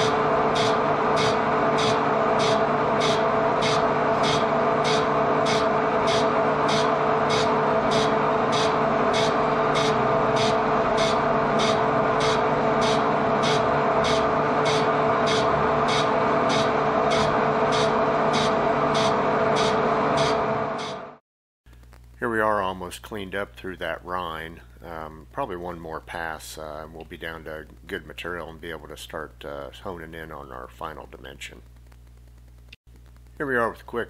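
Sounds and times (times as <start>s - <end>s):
metal lathe cutting: 0.0s - 21.2s.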